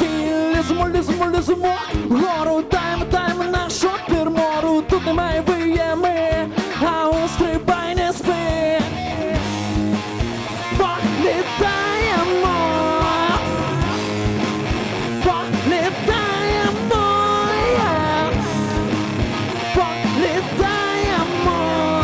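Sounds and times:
electric guitar lead line: 0:00.0 - 0:22.0
rock band playing live: 0:00.0 - 0:22.0
steady drum beat: 0:00.0 - 0:22.0.

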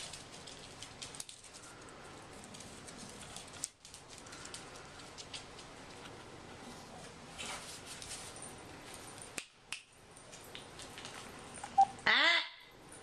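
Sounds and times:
dog claws clicking on hard floor: 0:00.0 - 0:06.1, 0:08.9 - 0:11.3.

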